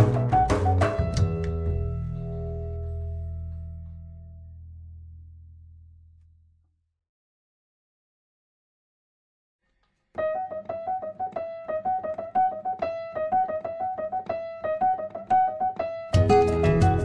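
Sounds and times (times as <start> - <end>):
full music arrangement: 0.0 - 3.8, 10.2 - 17.0
solo piano melody: 0.0 - 4.0, 10.2 - 17.0.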